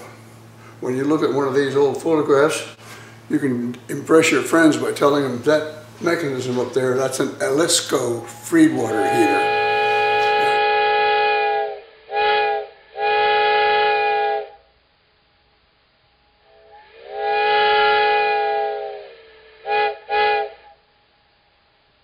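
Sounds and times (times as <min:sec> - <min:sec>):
steam locomotive chime whistle: 0:07.5 - 0:14.6, 0:16.4 - 0:20.8.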